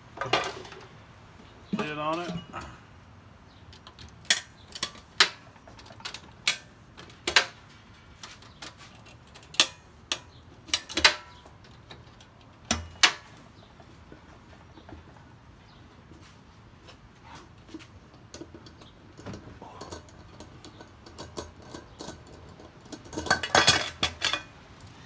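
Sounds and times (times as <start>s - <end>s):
metal lid clicks and clanks: 9.3s - 11.8s, 18.3s - 24.5s.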